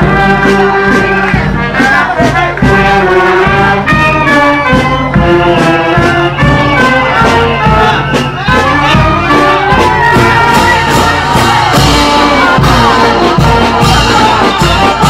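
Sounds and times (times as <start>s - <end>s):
brass band playing marching music: 0.0s - 15.0s.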